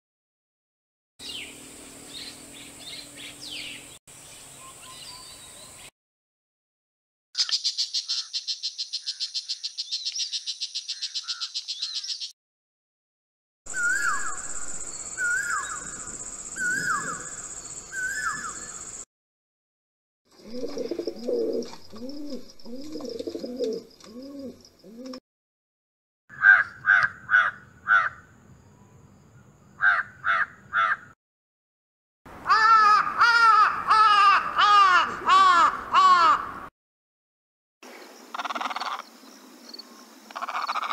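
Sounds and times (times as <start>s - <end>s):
low rounded bird notes: 13.7s - 19.0s
crow cawing: 26.3s - 28.3s, 29.8s - 31.2s, 32.4s - 36.7s, 38.3s - 39.0s, 40.3s - 40.9s.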